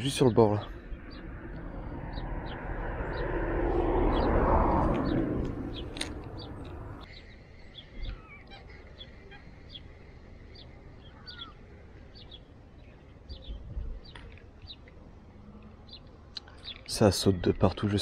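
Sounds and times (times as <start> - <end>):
low bumps: 0.0 - 7.1
low outdoor rumble: 0.0 - 16.9
wild birds chirping: 0.0 - 18.0.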